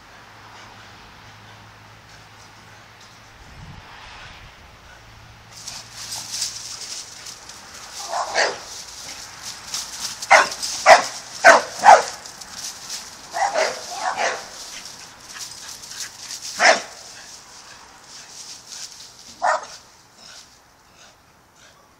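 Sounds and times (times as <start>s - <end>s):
dog barking: 8.0s - 8.7s, 10.3s - 12.3s, 13.3s - 14.6s, 16.6s - 17.1s, 19.4s - 19.8s.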